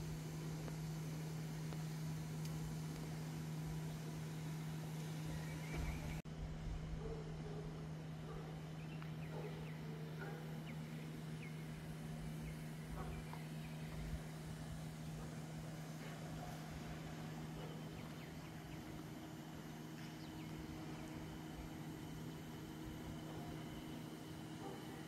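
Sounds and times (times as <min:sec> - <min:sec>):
low hum and rumble: 0:00.0 - 0:25.0
bird chirps: 0:05.2 - 0:06.2.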